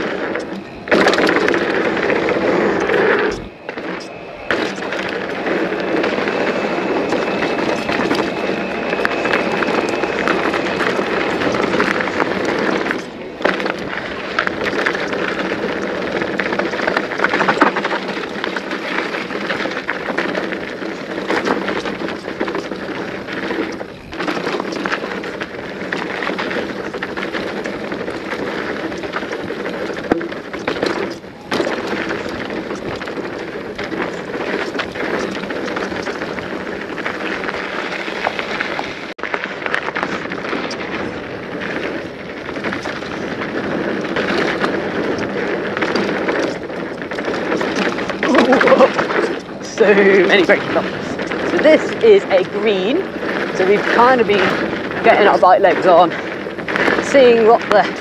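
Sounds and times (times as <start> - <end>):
bike rattling over bumps: 0.0 - 58.0
bike tyres crackling over dirt: 0.0 - 58.0.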